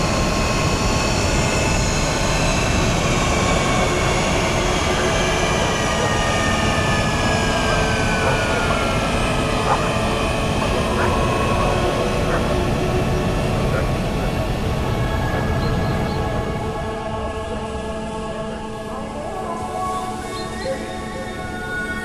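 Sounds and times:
spaceship engine roar: 0:01.2 - 0:16.8.

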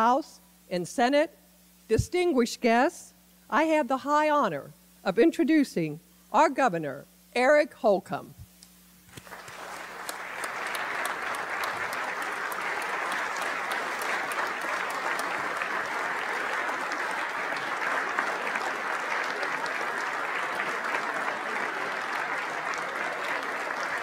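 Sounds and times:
crowd clapping: 0:09.1 - 0:24.0.

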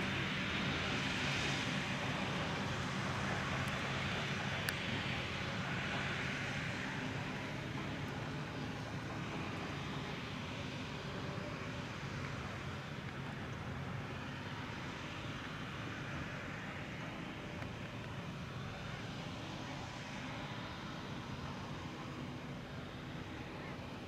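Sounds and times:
tractors working: 0:00.0 - 0:24.0.

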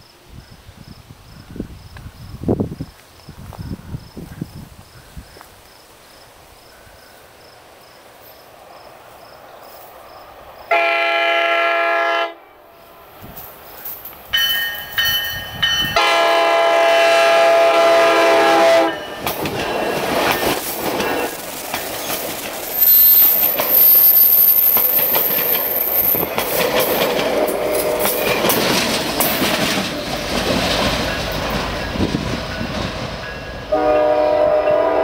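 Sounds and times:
train air horn blasts: 0:10.7 - 0:12.6, 0:15.9 - 0:19.1, 0:33.6 - 0:35.0
train wheels rumbling on track: 0:12.7 - 0:35.0.

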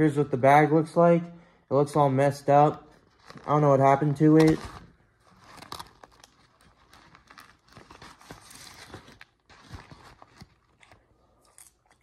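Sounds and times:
paper bag rustling and crinkling: 0:02.9 - 0:11.0.

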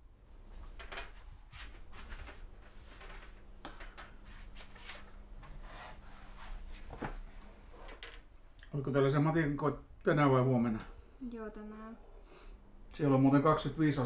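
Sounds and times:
faint steady hum: 0:00.0 - 0:14.0
soft rustling: 0:00.5 - 0:08.0.

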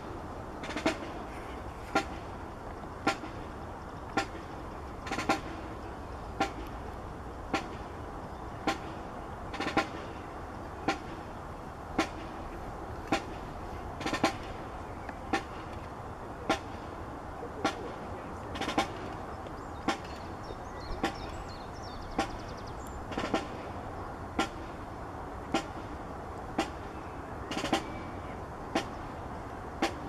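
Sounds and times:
steady hiss: 0:00.0 - 0:30.0
slow percussion beat: 0:04.1 - 0:07.9, 0:12.0 - 0:16.8.

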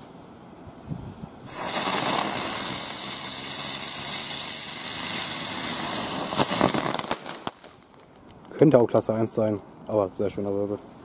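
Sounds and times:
firework hissing and whistling: 0:01.4 - 0:08.0
firework crack: 0:01.4 - 0:08.6.

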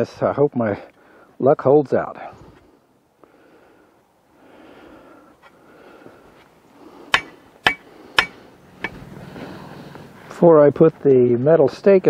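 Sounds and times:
sharp strikes: 0:07.1 - 0:09.0.

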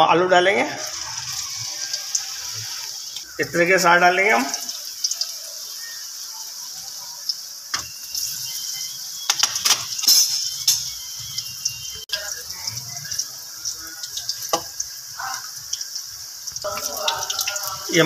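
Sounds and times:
potatoes sizzling in hot oil: 0:00.5 - 0:18.0.

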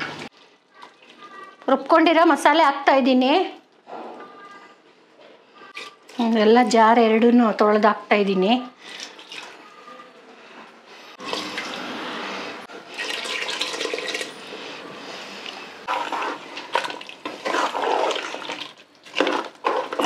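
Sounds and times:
ladle stirring and sloshing curry: 0:12.7 - 0:20.0
water pouring into a pot: 0:12.9 - 0:14.4, 0:15.9 - 0:20.0.

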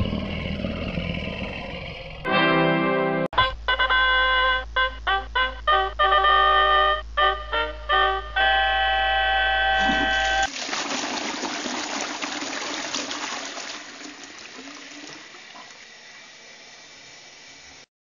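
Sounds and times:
held music chord: 0:02.3 - 0:10.4
toilet flushing: 0:09.8 - 0:17.8.

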